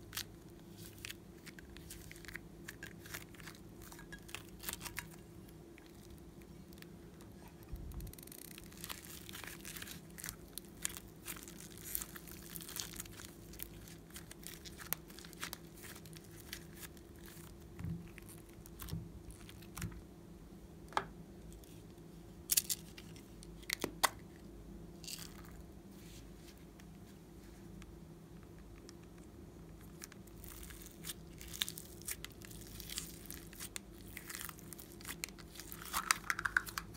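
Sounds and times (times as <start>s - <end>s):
clay crackling and tearing: 0.0s - 20.0s, 28.8s - 36.9s.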